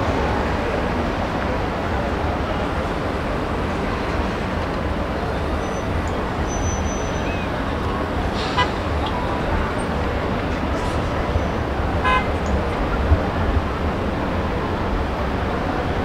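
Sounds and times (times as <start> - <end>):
heavy city traffic: 0.0 - 16.0
car horn toot: 8.5 - 8.9, 12.0 - 12.4.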